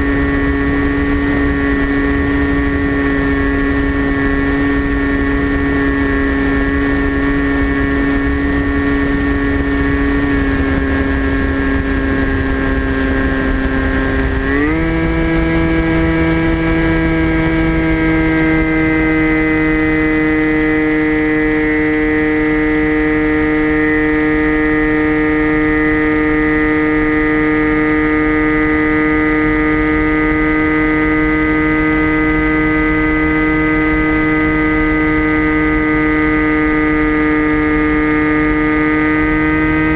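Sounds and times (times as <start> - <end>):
airflow rushing: 0.0 - 36.9
electric motor buzzing whine: 0.0 - 39.9.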